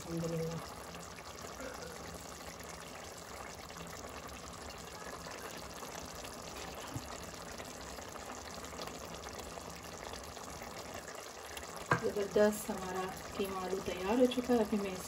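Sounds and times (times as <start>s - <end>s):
curry bubbling and hissing: 0.0s - 15.0s.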